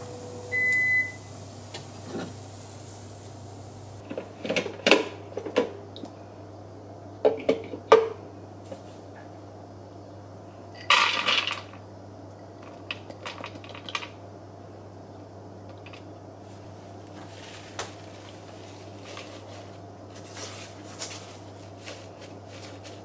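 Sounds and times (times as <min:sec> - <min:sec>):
steady low hum: 0:00.0 - 0:04.4, 0:14.1 - 0:23.0.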